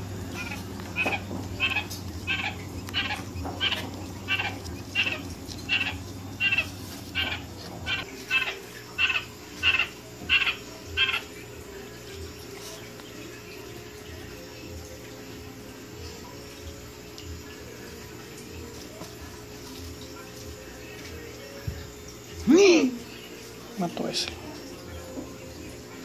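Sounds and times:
quail chick peeping: 0.0s - 13.6s.

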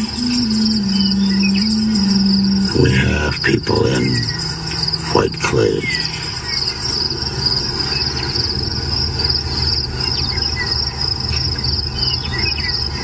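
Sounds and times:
crickets trilling: 0.0s - 13.0s
low steady rumble: 0.0s - 13.0s.

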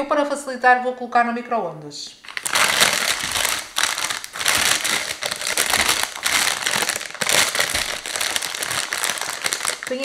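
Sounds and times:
plastic bag crinkling: 2.2s - 10.0s
plastic bag tearing: 2.2s - 10.0s.

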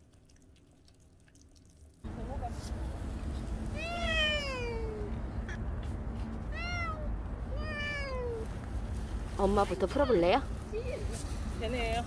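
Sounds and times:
cat meowing: 3.8s - 5.1s, 6.5s - 8.5s.

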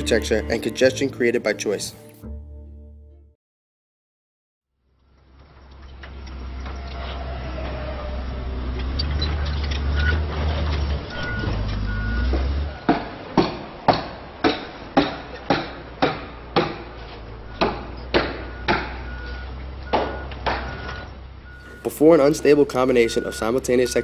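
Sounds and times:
heavy vehicle engine rumbling: 4.9s - 24.0s
reversing beeper: 11.1s - 12.9s, 18.5s - 24.0s.

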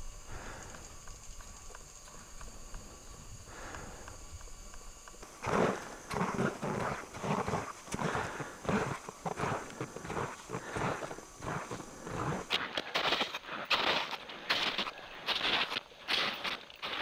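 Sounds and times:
boots crunching through snow: 5.3s - 17.0s.

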